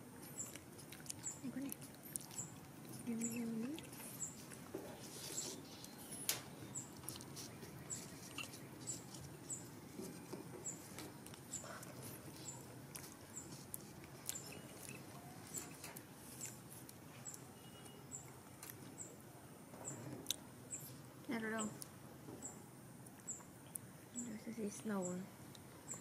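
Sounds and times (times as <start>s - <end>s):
faint high-pitched chirp: 17.2s - 18.3s.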